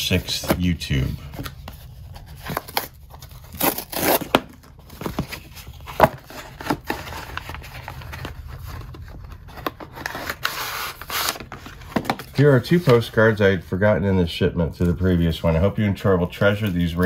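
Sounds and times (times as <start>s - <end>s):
cardboard envelope tearing: 0.0s - 12.9s.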